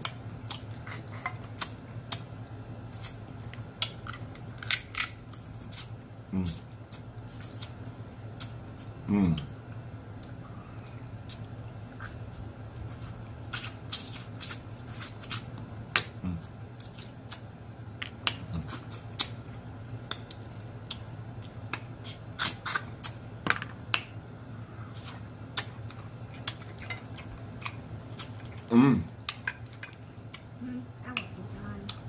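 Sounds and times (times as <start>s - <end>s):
steady low hum: 0.0s - 32.0s
crab shell cracking: 3.0s - 5.8s
mouth sounds: 6.3s - 6.7s, 16.1s - 16.6s.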